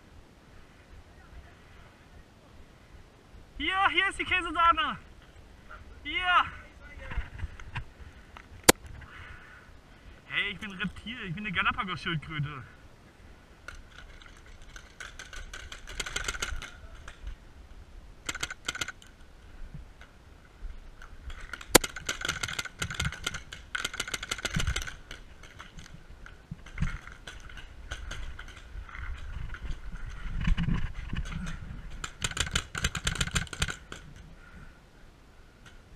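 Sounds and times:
rapid clicking and rattling: 13.7s - 16.8s, 18.2s - 19.1s, 21.3s - 34.2s
sharp crack: 21.6s - 25.2s.

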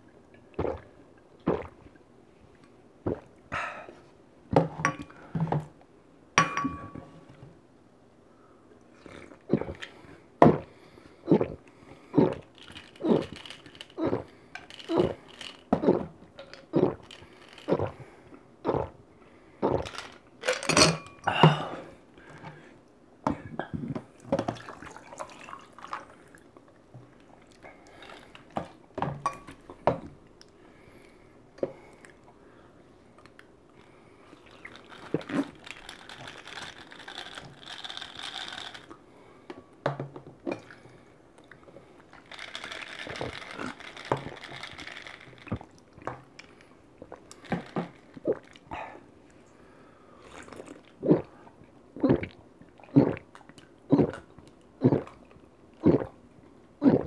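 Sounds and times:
loud gulping swallows: 0.5s - 2.0s, 9.0s - 19.0s, 19.6s - 20.0s, 50.2s - 56.2s, 56.8s - 57.0s
drink pouring into glass: 24.4s - 26.2s.

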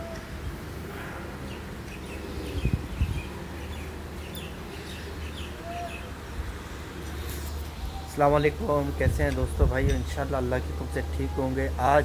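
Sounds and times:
small birds chirping: 1.4s - 10.2s.

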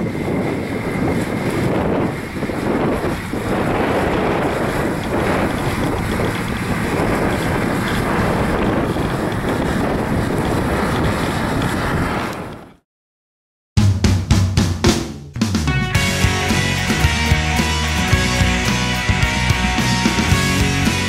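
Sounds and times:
distant tractor engine: 0.0s - 12.6s, 15.2s - 21.0s
wind buffeting microphone: 0.0s - 12.8s.

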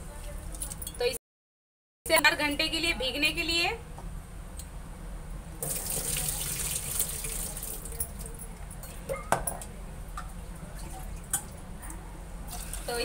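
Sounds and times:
water pouring and splashing: 5.6s - 8.4s, 12.5s - 13.0s.

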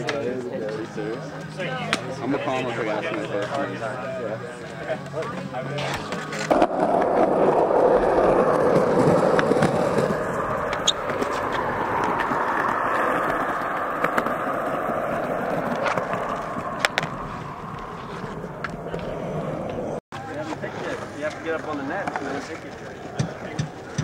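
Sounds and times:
small wheels rolling on asphalt: 5.8s - 24.0s.

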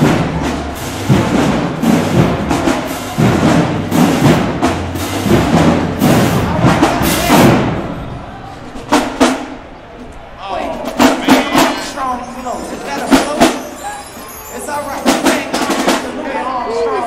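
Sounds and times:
heavy drum hits: 0.0s - 9.7s
marching band playing: 0.0s - 16.4s.

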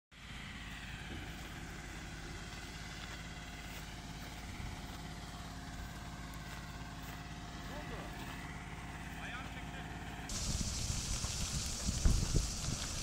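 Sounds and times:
fire truck engine running: 0.2s - 13.0s
steady hiss: 10.3s - 13.0s.

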